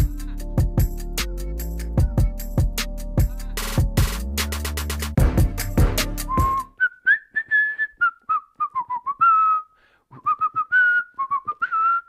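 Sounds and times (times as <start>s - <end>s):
man whistling a tune: 6.2s - 12.0s.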